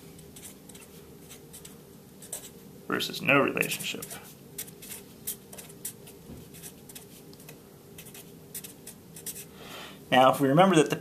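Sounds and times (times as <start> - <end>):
marker pen scratching paper: 0.3 - 2.6, 3.6 - 9.5.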